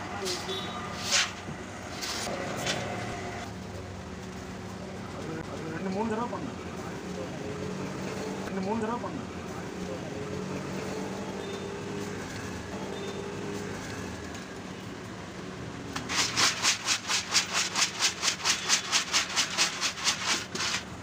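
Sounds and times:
dried peas rattling in metal pot: 16.1 - 21.0.

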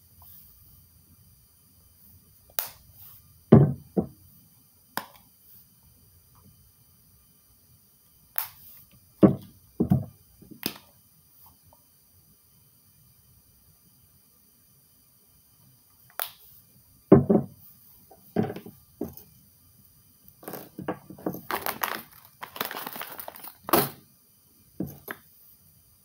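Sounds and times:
objects knocking on a tabletop: 3.5 - 4.1, 9.2 - 10.6, 17.1 - 17.6, 18.2 - 19.2, 20.4 - 21.6, 24.8 - 25.2.

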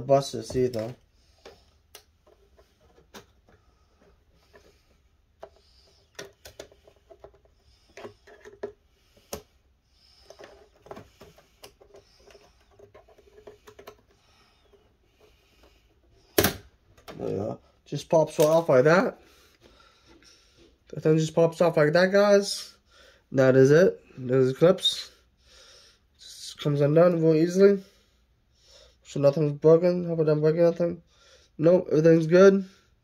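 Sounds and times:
plastic clips clicking and creaking: 5.4 - 9.5.

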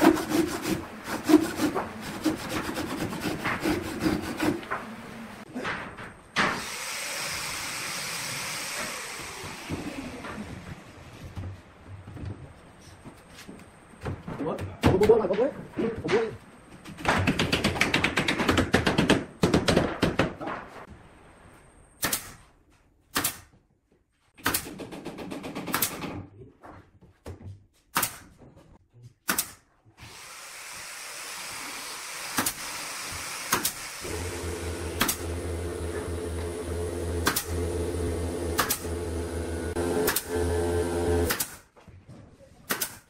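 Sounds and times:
nail gun firing into wood: 22.0 - 22.4, 23.1 - 23.5, 24.4 - 26.2, 28.0 - 28.3, 29.3 - 29.6, 32.3 - 32.7, 33.5 - 33.8, 35.0 - 35.3, 37.2 - 37.6, 38.6 - 39.0, 40.0 - 40.5, 41.2 - 41.7, 42.7 - 43.0.

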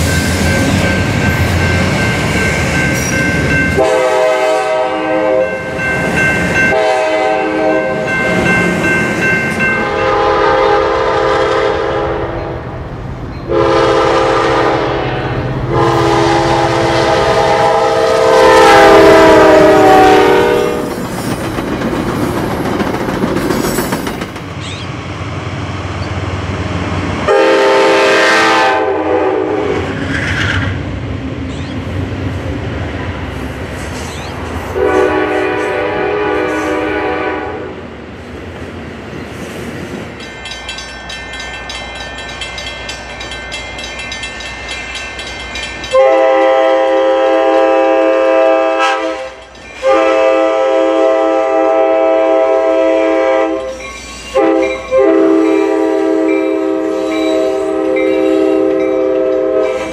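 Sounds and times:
bell ringing: 0.0 - 3.9, 5.4 - 6.8, 7.8 - 10.1, 40.2 - 46.0, 53.6 - 55.7
passing trains rumbling: 0.0 - 59.9
locomotive air horn blasts: 3.8 - 5.7, 6.7 - 8.2, 9.8 - 12.4, 13.5 - 20.9, 27.3 - 30.0, 34.7 - 37.7, 45.9 - 59.9.

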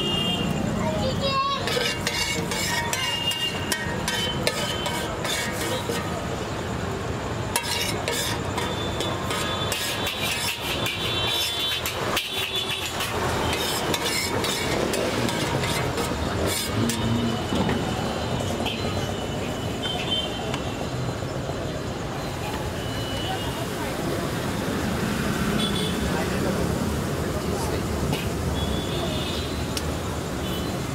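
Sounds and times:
traffic noise: 0.0 - 30.9
voices: 0.0 - 30.9
steel plates and utensils clinking: 1.6 - 6.2, 7.5 - 17.6.

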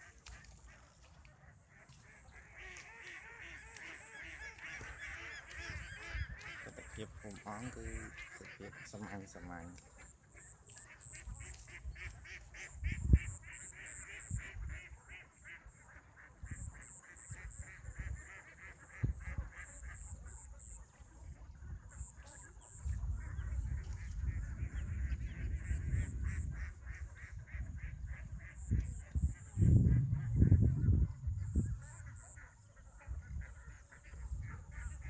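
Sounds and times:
rapid animal calls: 1.5 - 12.7.

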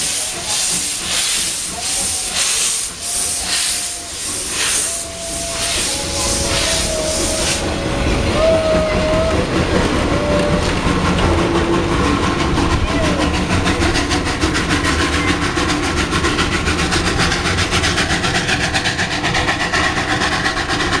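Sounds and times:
voices: 0.0 - 12.0, 12.6 - 14.0
train carriages rolling past: 0.0 - 21.0.

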